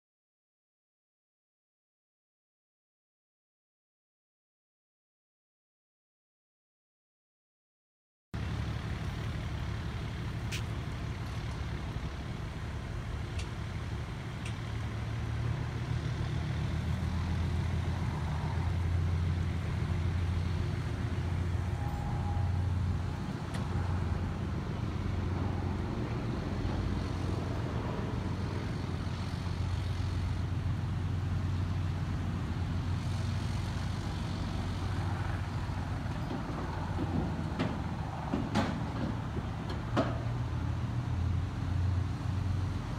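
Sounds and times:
vehicle engine idling: 0:08.4 - 0:42.9.

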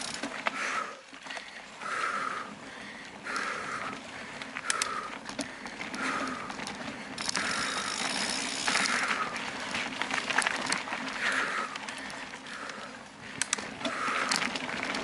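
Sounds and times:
bike rattling over roots: 0:00.0 - 0:15.0
bike tyres on dirt and stones: 0:00.0 - 0:15.0
freewheel ticking: 0:04.6 - 0:15.0.

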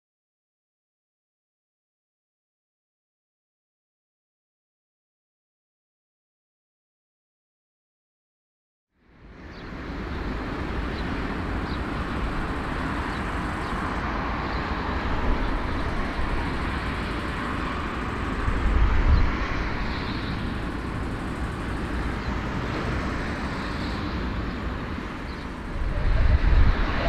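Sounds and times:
distant jet engine: 0:09.0 - 0:27.0.

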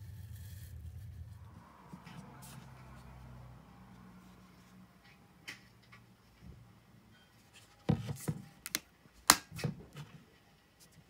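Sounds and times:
plastic bottle knocks and rubbing: 0:07.9 - 0:08.4.

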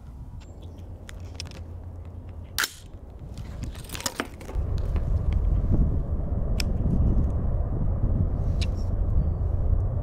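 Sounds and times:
sharp metallic clicks of rifle: 0:02.6 - 0:03.0
loud low rumble: 0:04.5 - 0:10.0.

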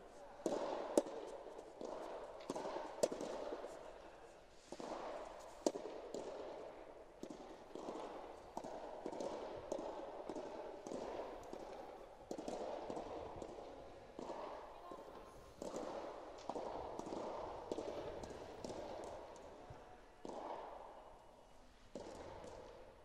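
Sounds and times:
echoing tennis ball smacks: 0:00.4 - 0:03.8, 0:04.7 - 0:19.5.

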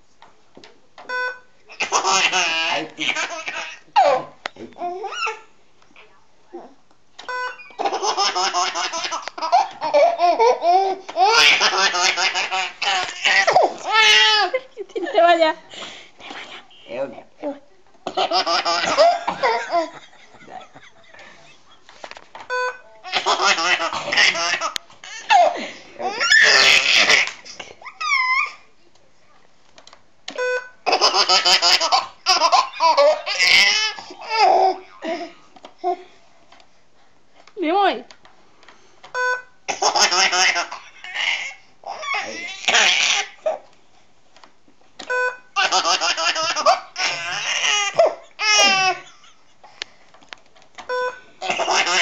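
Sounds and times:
computer beep: 0:01.1 - 0:01.5, 0:07.3 - 0:07.7, 0:22.5 - 0:22.9, 0:30.4 - 0:30.8, 0:39.2 - 0:39.5
baby laughing and squealing: 0:01.8 - 0:05.5, 0:07.4 - 0:14.5, 0:23.1 - 0:28.7, 0:39.8 - 0:43.6, 0:45.6 - 0:49.1.

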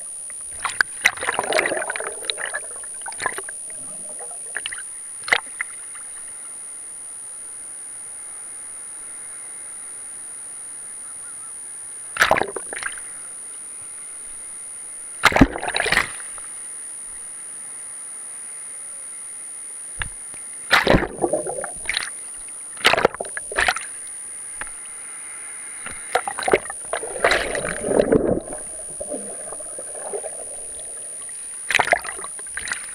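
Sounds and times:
steady hiss: 0:15.9 - 0:32.9
surf splashing: 0:20.7 - 0:24.0, 0:25.8 - 0:32.9
thin high steady tone: 0:23.4 - 0:32.8.

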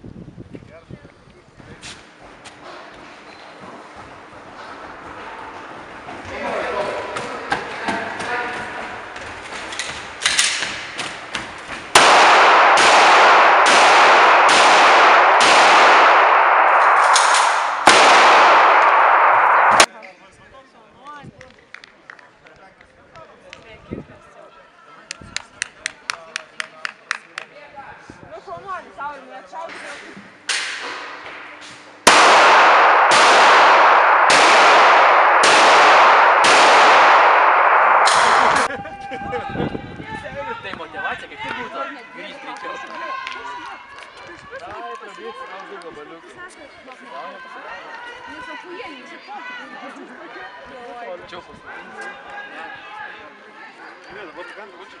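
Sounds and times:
pistol shots with ringing echo: 0:11.9 - 0:19.9, 0:32.0 - 0:38.7.

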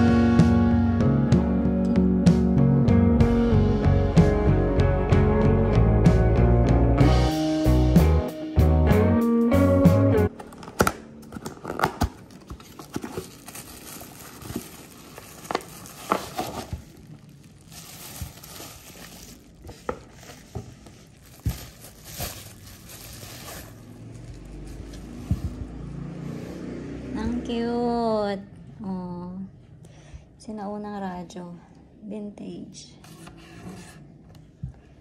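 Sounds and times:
cardboard box opening: 0:10.3 - 0:17.2
bubble wrap crinkling: 0:10.3 - 0:25.5.

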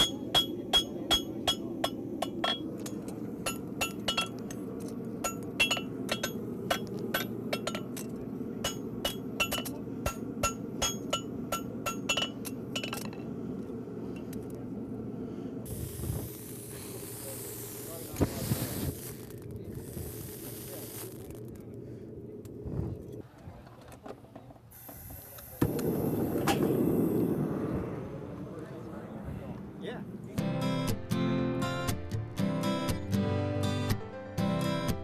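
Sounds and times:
hammer striking horseshoe on anvil: 0:00.0 - 0:04.6, 0:05.2 - 0:13.2
steady hiss: 0:00.0 - 0:23.2, 0:24.6 - 0:28.8.

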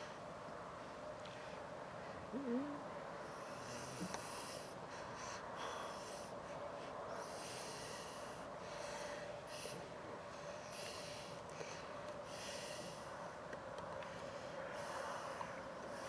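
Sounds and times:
faint steady hum: 0:00.0 - 0:16.0
man breathing noisily through nose: 0:03.2 - 0:16.0.

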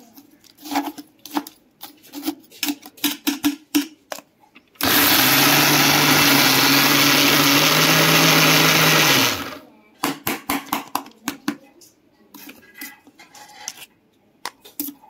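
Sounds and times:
mixer grinder motor running: 0:04.8 - 0:09.6.

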